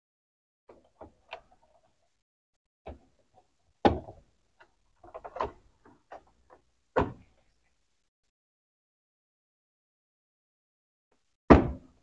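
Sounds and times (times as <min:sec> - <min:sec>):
plastic clicks and knocks: 0:03.8 - 0:07.3.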